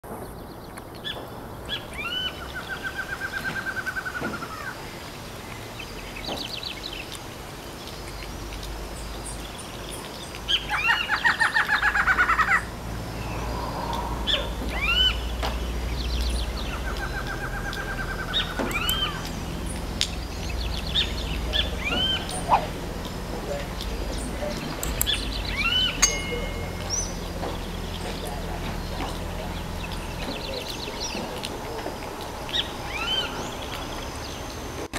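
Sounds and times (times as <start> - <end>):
bird song of rapid repeated notes: 0.1 - 34.9
bird song played through a speaker: 5.4 - 12.4, 13.2 - 31.6, 32.4 - 34.7
short rising bird notes: 10.5 - 17.4, 25.0 - 31.8.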